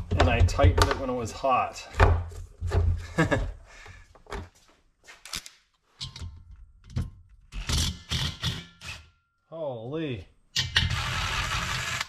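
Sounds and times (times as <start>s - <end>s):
plastic thunks and knocks: 0.0s - 1.1s, 1.9s - 3.5s.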